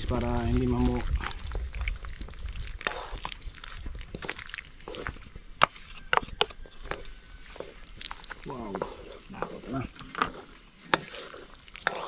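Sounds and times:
spoon scraping cooking pan: 4.1s - 12.0s.

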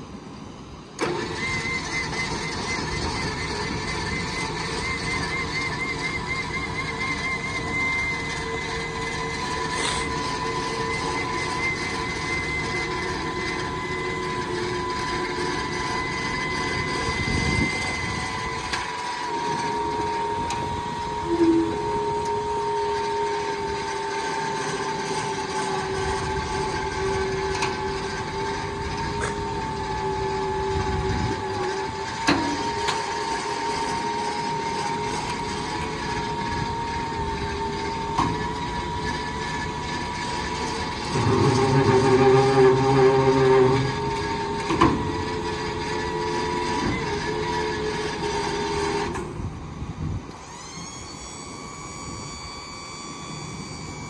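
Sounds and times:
hydraulic pump whining: 0.0s - 54.0s.

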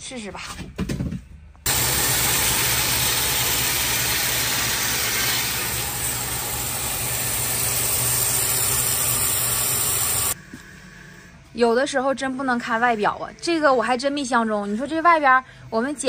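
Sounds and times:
band saw cutting wood: 1.7s - 10.4s.

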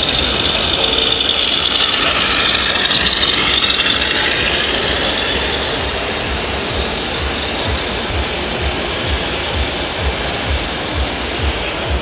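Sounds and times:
toy truck diesel engine sound: 0.0s - 10.9s
exhibition hall din: 0.0s - 12.0s.

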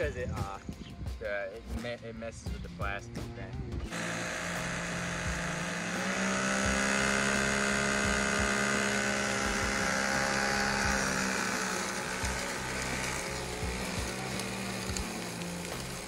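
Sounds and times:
small electric motor whine: 3.9s - 16.0s.

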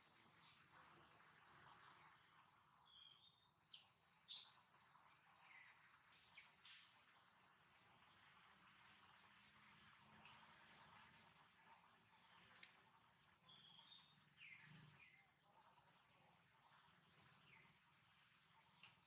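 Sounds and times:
insects trilling: 0.0s - 19.0s.

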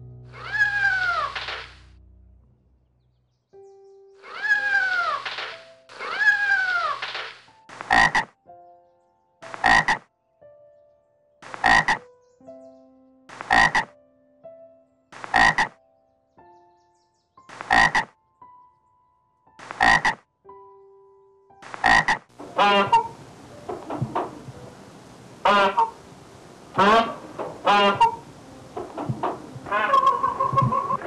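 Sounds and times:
frog croaking: 7.8s - 8.4s, 9.4s - 10.1s, 11.4s - 12.1s, 13.3s - 13.9s, 15.2s - 15.8s, 17.5s - 18.1s, 19.6s - 20.2s, 21.6s - 31.0s
cat meowing: 29.6s - 31.0s.

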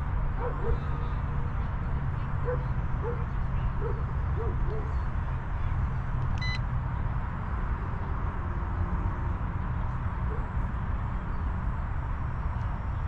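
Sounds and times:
high electronic beep: 6.4s - 6.6s.

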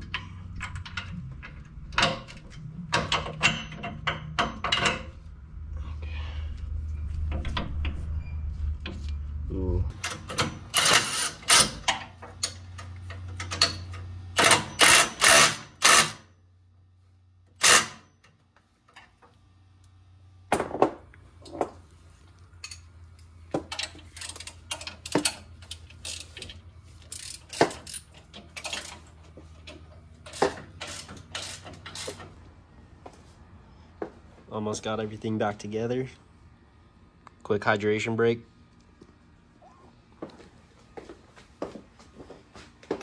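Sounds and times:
low steady hum: 0.0s - 14.9s
ratchet wrench clicking: 27.0s - 29.0s, 30.3s - 32.2s.

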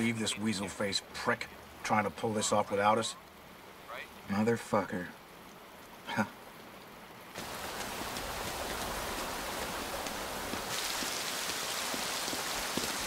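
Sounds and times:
heavy rain on pavement: 5.2s - 13.0s.

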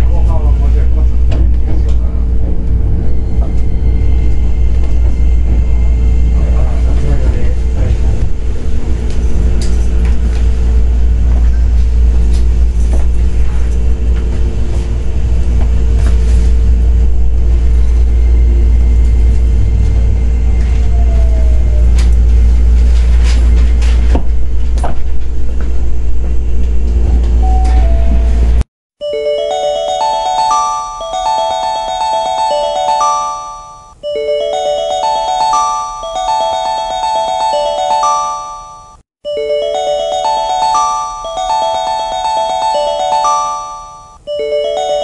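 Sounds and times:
train low rumble: 0.0s - 28.6s.

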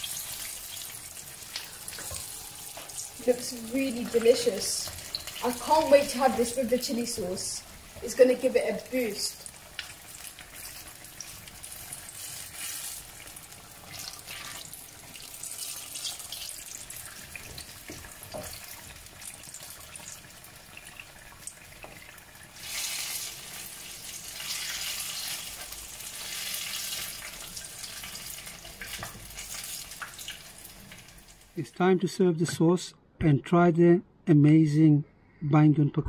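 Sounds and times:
aubergine slices deep-frying in oil: 0.0s - 31.6s.

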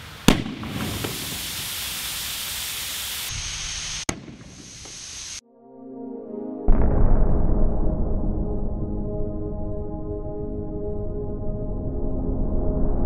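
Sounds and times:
compressed air hissing from hose: 0.0s - 5.4s
ball bursting bang: 0.2s - 1.7s, 4.1s - 5.0s
music: 5.4s - 13.0s.

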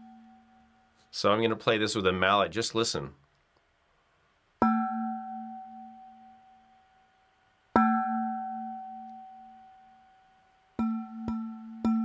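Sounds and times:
metal bottle struck with mallet: 4.6s - 5.4s, 10.8s - 12.0s.

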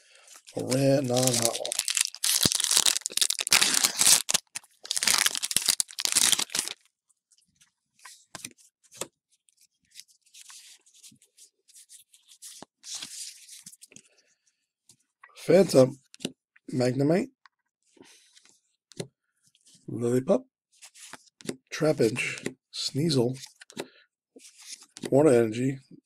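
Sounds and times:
cards rustling and clicking: 0.4s - 6.8s
foil wrapper tearing and crinkling: 0.5s - 6.8s.

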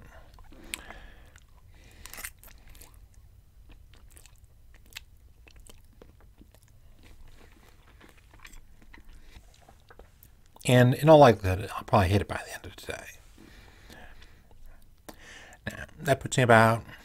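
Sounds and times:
man chewing food: 0.0s - 10.7s, 13.3s - 15.7s.

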